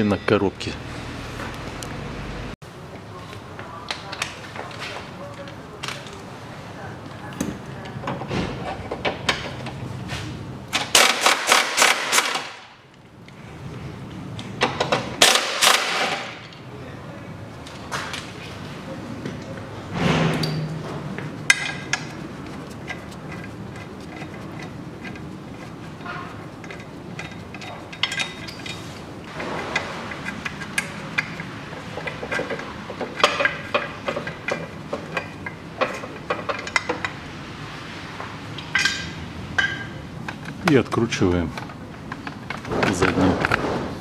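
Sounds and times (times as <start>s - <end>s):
spanner and bolts clinking: 20.4s - 37.2s.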